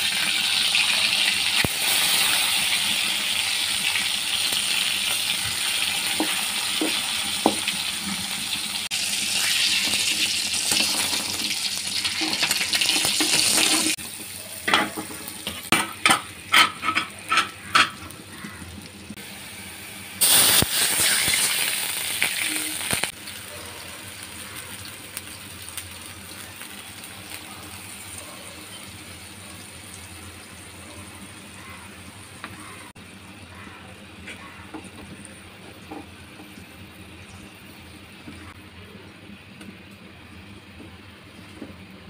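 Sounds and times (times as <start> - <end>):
water hissing in hot oil: 0.0 - 15.4, 19.1 - 31.9.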